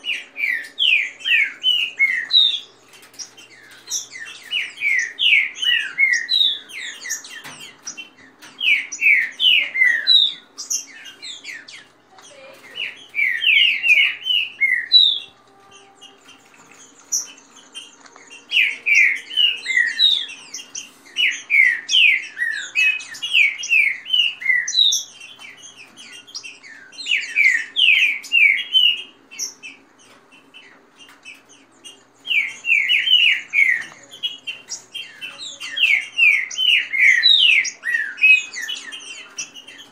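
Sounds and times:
birds singing whistled phrases: 0.0s - 39.9s.

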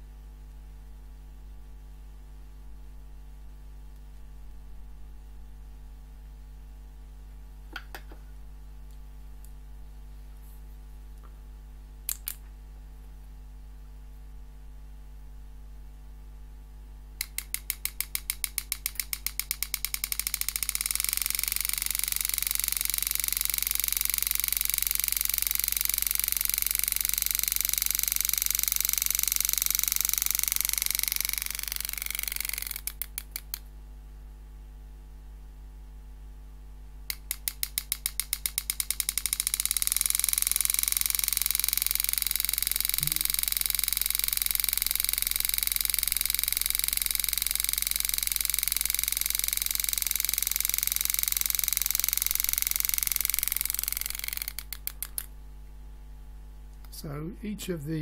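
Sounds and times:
graver handpiece clicking and buzzing: 12.1s - 12.4s, 17.2s - 33.7s, 37.1s - 55.4s.

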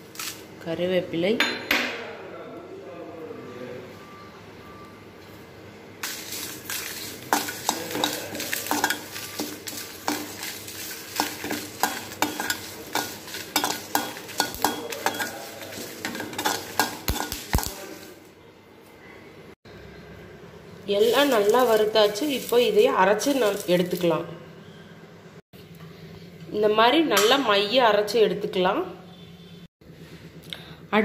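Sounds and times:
spatula scraping dry pan: 6.0s - 18.1s.

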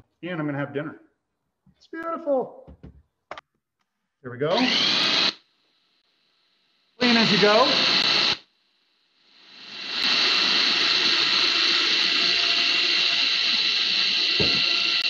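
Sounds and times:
food processor motor whirring: 4.5s - 5.4s, 7.1s - 8.4s, 9.5s - 15.0s.

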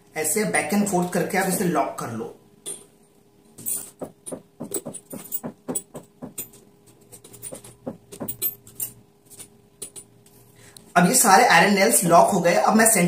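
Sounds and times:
metal nails clinking: 3.6s - 10.1s.

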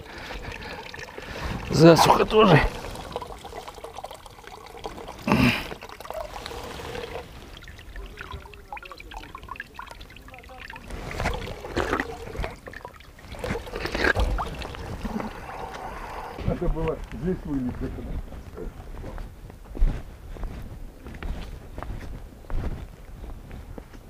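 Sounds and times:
spring water trickling: 0.0s - 17.2s.

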